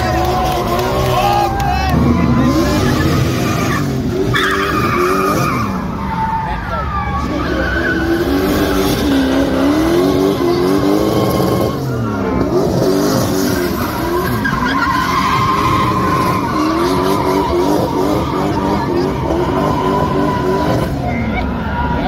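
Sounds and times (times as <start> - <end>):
car engine revving hard: 0.0 - 5.8, 7.2 - 21.2
tyres squealing: 12.8 - 22.0.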